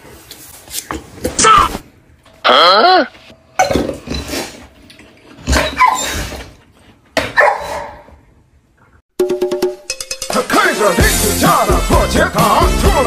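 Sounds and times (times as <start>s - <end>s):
music with even beat: 9.2s - 13.0s.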